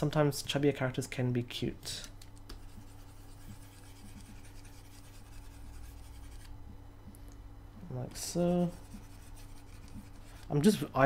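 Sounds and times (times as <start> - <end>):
low electrical hum: 0.0 - 11.0
mouse scratching over desk: 2.6 - 6.5, 8.7 - 10.5.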